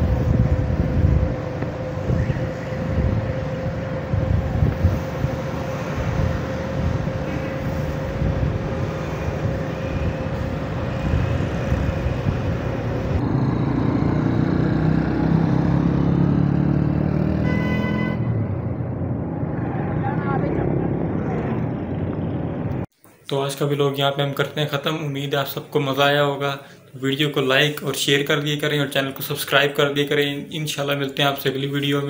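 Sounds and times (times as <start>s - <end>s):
vehicle engine and road noise: 0.0s - 22.9s.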